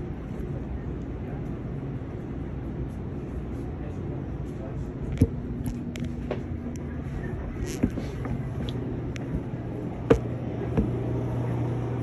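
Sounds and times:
idling vehicle engine hum: 3.4 - 12.0.

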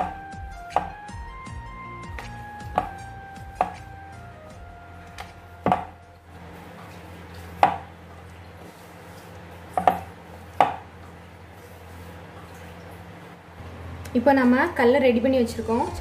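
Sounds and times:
wooden rolling pin knocks: 5.2 - 6.0.

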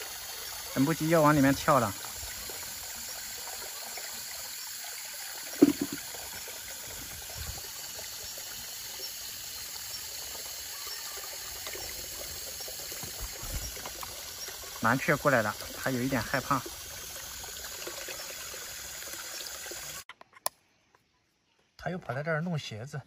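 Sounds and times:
hose water splashing into basin: 0.0 - 20.1
sharp knock: 5.6 - 6.0.

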